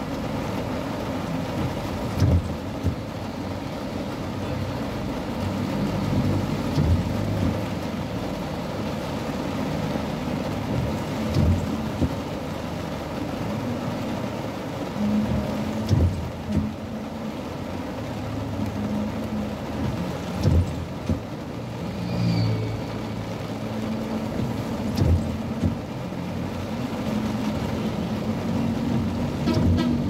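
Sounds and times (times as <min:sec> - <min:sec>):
car engine running: 0:00.0 - 0:21.8, 0:23.2 - 0:30.0
rain on car windshield: 0:00.0 - 0:30.0
windshield wipers thumping: 0:00.5 - 0:03.3, 0:05.3 - 0:08.0, 0:08.9 - 0:14.3, 0:15.0 - 0:17.5, 0:18.6 - 0:21.6, 0:23.8 - 0:30.0.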